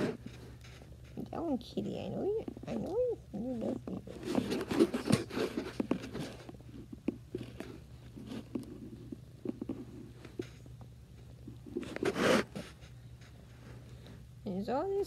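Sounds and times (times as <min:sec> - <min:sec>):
phone rubbing against fur: 0:00.0 - 0:01.6, 0:02.3 - 0:10.7, 0:11.5 - 0:13.8
cat purring: 0:01.0 - 0:10.6.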